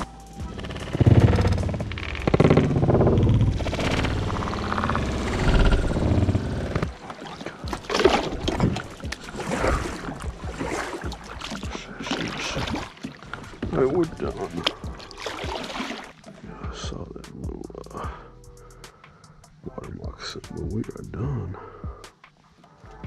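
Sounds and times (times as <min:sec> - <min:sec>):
paddle strokes splashing: 0:03.6 - 0:16.4.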